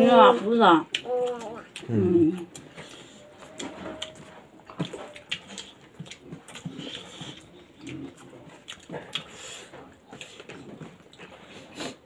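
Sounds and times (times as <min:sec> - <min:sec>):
lip smacks while eating: 0:04.7 - 0:10.6.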